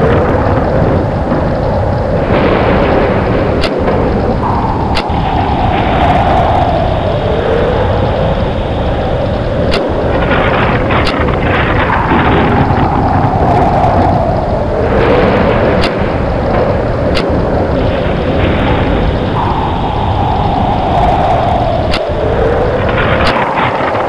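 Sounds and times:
low thunder rumble: 0.0 - 24.0
rain: 0.0 - 24.0
sharp thunder cracks: 0.0 - 24.0
wind howling: 0.0 - 24.0.

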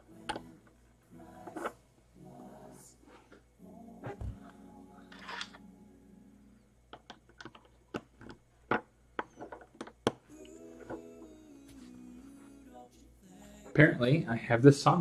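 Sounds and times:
soft holiday music: 0.0 - 6.7, 10.3 - 15.0.

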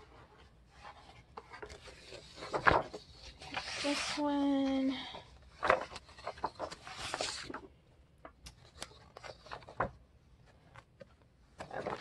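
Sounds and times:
paper sheets rustling: 0.8 - 7.7, 11.6 - 12.0.

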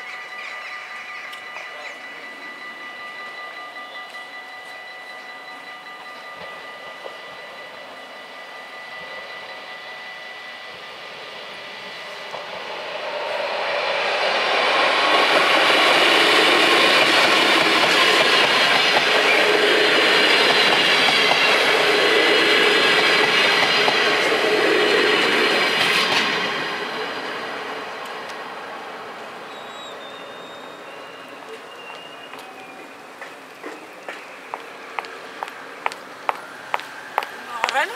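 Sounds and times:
level-crossing bells ringing: 0.0 - 27.9
electric train passing: 0.0 - 37.9.

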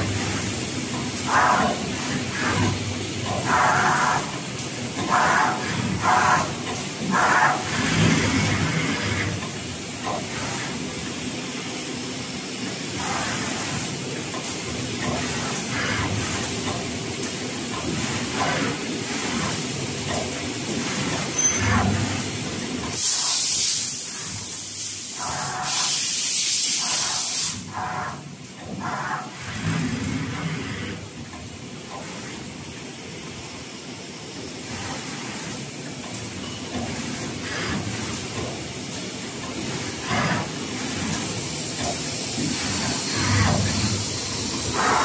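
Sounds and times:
printing machine running: 0.0 - 45.0
pneumatic air hissing: 23.0 - 28.0.

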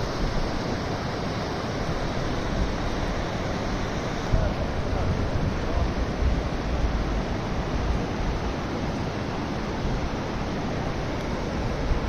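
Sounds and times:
river rushing over stones: 0.0 - 12.0.

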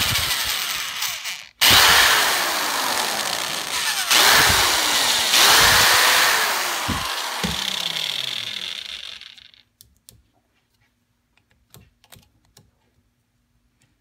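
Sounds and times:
electric drill boring into metal: 0.0 - 9.6.

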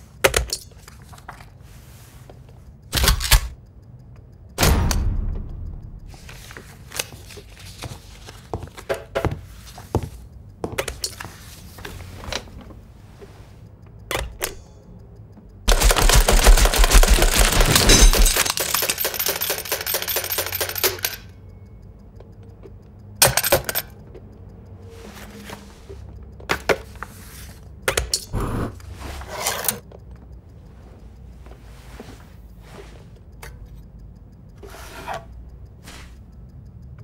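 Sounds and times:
desk stapler struck: 4.6 - 6.2
rapid stapling rattle: 15.7 - 21.1.

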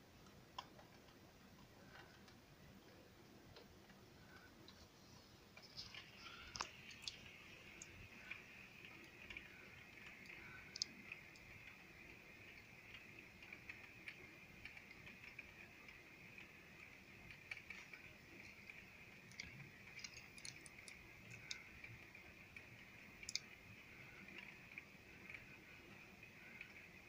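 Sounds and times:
faint high hiss: 1.6 - 27.0
rain tapping on window glass: 5.6 - 27.0.

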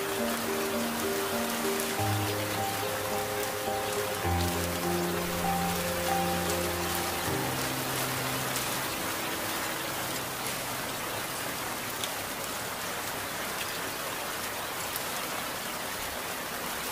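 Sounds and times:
low held song notes: 0.0 - 12.2
raindrop ticks: 0.0 - 12.7
steady rain: 0.0 - 16.9.

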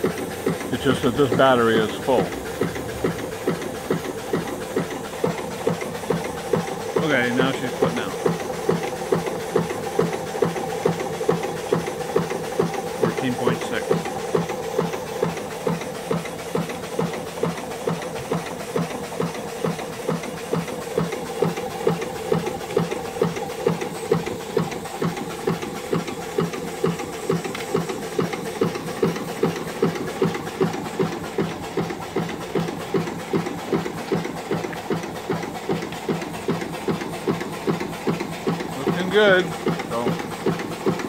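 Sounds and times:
steam hissing: 0.0 - 14.9
steam engine exhaust beats: 0.0 - 41.0.

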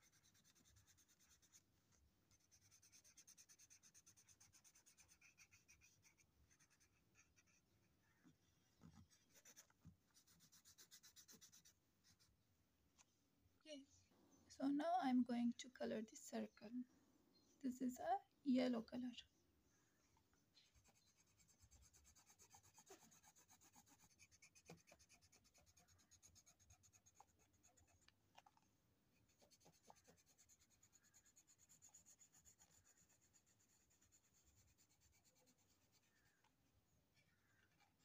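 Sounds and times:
pencil scratching on paper: 0.0 - 7.9, 8.9 - 12.4, 20.6 - 28.1, 29.2 - 36.4.

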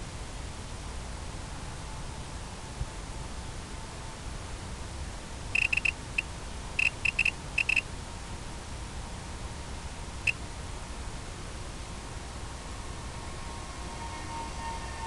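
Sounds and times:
steady hiss and low rumble: 0.0 - 15.0
high electronic beeps: 5.6 - 6.0, 6.8 - 7.8.

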